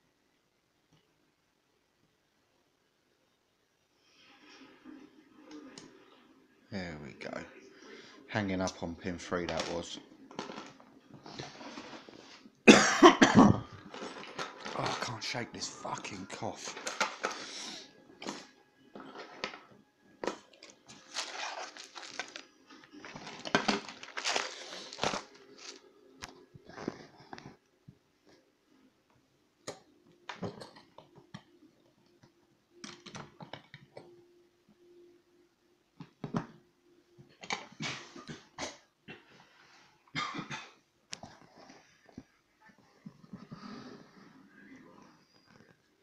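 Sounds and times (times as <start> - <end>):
man coughing: 12.7 - 13.7.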